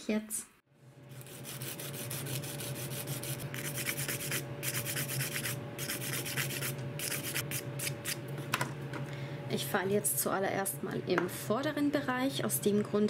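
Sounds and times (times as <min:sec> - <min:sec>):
extractor fan hum: 0:00.7 - 0:12.9
nail file rasping: 0:01.1 - 0:08.2.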